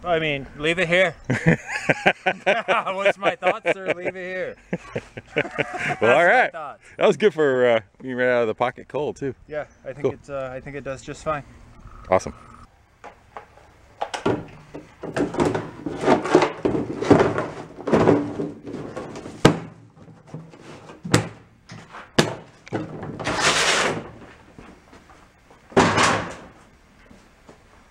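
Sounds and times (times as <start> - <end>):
chainsaw clattering into plastic case: 14.0 - 20.4
plastic case scraping on steel: 14.5 - 19.4, 22.7 - 24.2.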